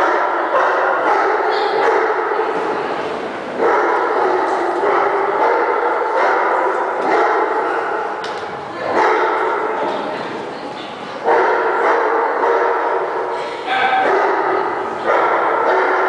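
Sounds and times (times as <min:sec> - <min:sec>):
dog barking and yipping: 0:14.0 - 0:16.0.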